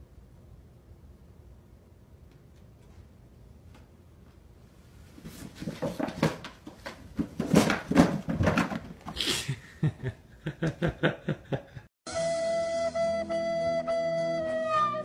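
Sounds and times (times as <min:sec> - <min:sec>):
person laughing: 0:09.2 - 0:11.9
flute music: 0:12.1 - 0:15.0.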